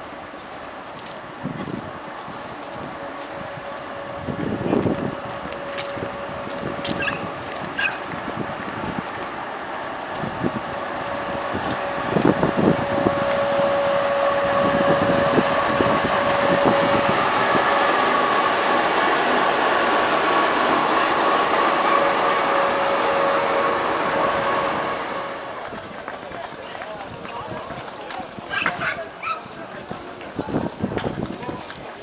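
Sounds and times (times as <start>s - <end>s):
steady high whine: 0.0s - 26.0s
rumble of coaches: 24.8s - 32.0s.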